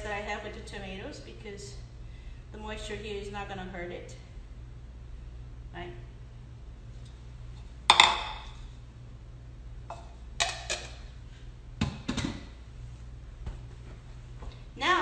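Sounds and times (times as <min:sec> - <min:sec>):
dishes set down with thuds: 0:07.9 - 0:08.6.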